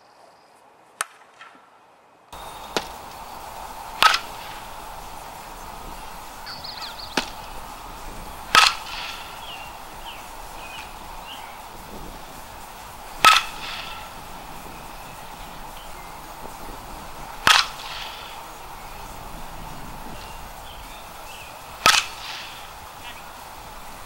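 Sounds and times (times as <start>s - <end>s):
bat striking balls: 2.4s - 23.8s
birds chirping: 2.4s - 24.0s.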